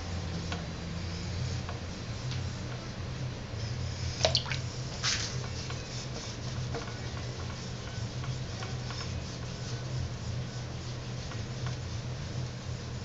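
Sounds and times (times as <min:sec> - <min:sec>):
wet clay squish: 0:04.2 - 0:04.7.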